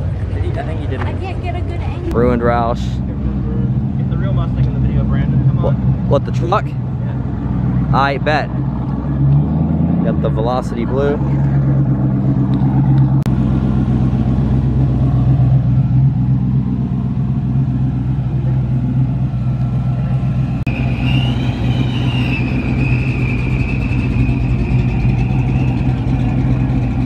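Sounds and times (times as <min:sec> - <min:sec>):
car engines rumbling: 0:00.0 - 0:27.0
high wavering whine: 0:18.4 - 0:27.0.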